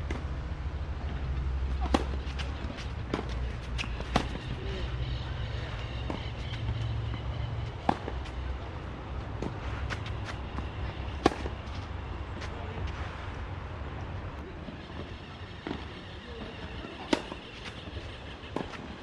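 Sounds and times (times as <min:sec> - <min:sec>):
tennis ball struck by rackets: 0:01.8 - 0:04.5, 0:07.8 - 0:08.4, 0:11.2 - 0:11.7, 0:17.0 - 0:17.4.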